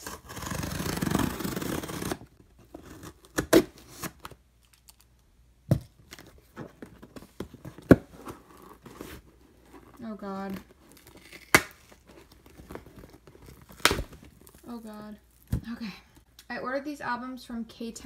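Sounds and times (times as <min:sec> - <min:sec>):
hands handling cardboard box: 0:05.7 - 0:15.8.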